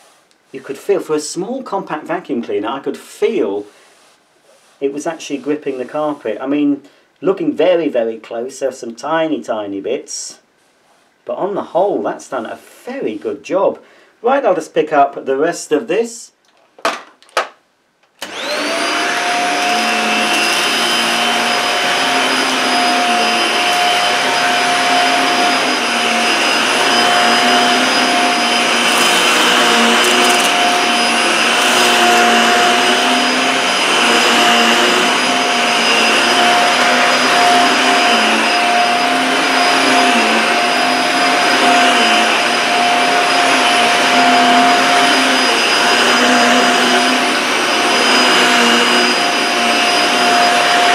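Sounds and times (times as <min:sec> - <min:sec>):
vacuum cleaner motor: 0:18.2 - 0:50.9
vacuum sucking up debris: 0:18.2 - 0:50.9.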